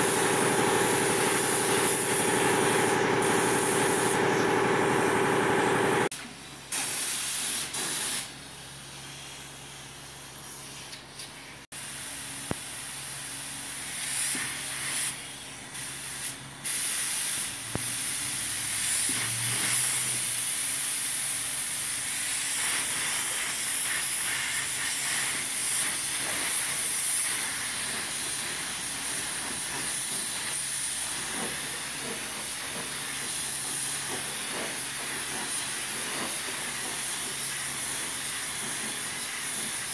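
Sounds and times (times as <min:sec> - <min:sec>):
paint spray gun hissing: 0:00.0 - 0:06.1, 0:06.7 - 0:08.4, 0:21.7 - 0:39.9.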